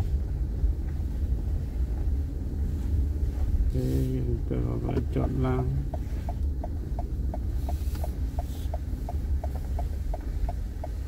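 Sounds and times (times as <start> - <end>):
low engine and road rumble: 0.0 - 11.0
turn signal ticking: 4.4 - 11.0.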